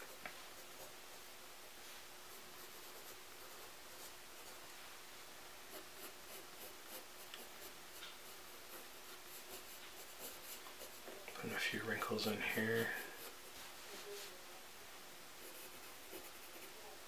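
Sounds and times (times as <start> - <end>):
pencil scratching on paper: 0.0 - 1.2, 2.3 - 4.6, 5.7 - 11.1, 11.8 - 13.7, 15.4 - 16.9.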